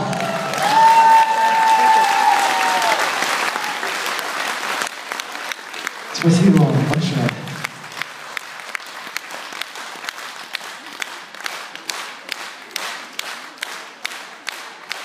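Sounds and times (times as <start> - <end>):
audience applauding: 0.0 - 15.0
nearby person clapping: 6.9 - 15.0.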